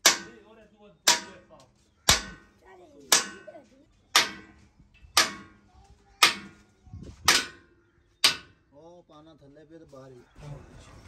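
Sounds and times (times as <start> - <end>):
hammer striking steel: 0.0 - 1.5, 2.1 - 2.5, 3.1 - 5.6, 6.2 - 6.6, 7.3 - 8.6.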